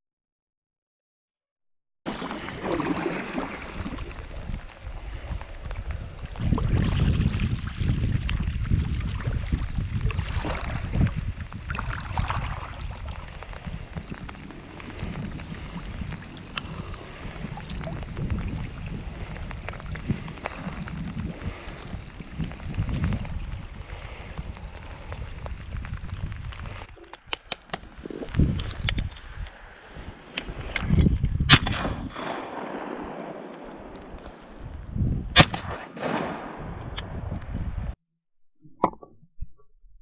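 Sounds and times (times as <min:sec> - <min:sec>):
wind buffeting microphone: 0:02.4 - 0:38.0
rain ticks: 0:12.9 - 0:27.8.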